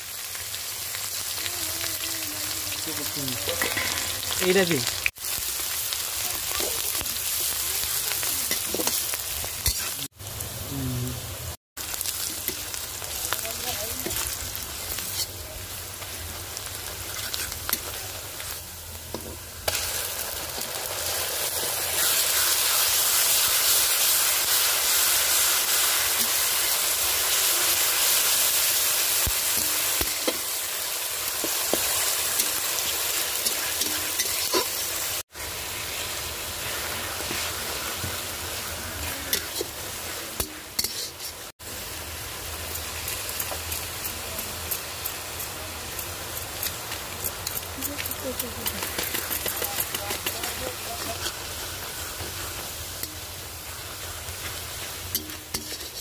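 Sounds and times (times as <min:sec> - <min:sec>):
onions sizzling in hot oil: 0:00.0 - 0:56.0
metal spatula scraping a wok: 0:08.4 - 0:10.0, 0:13.7 - 0:15.5, 0:16.6 - 0:18.0, 0:31.4 - 0:34.9, 0:36.6 - 0:41.5, 0:43.0 - 0:53.2, 0:54.1 - 0:56.0.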